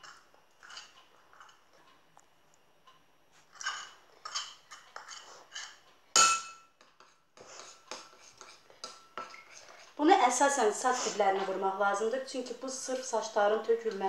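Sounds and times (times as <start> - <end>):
spoon scraping bowl: 0.0 - 1.7, 3.5 - 5.8, 6.9 - 10.0.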